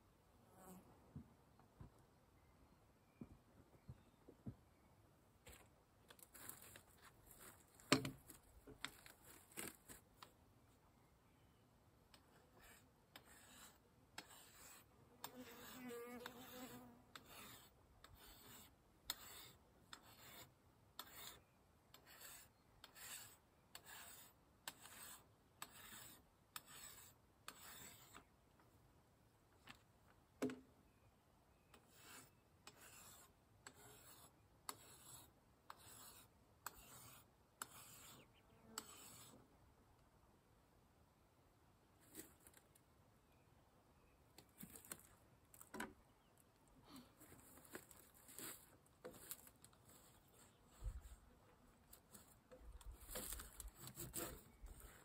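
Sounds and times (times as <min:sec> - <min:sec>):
hand tool rasping wood: 0:12.6 - 0:21.4, 0:22.0 - 0:28.2, 0:52.5 - 0:55.0.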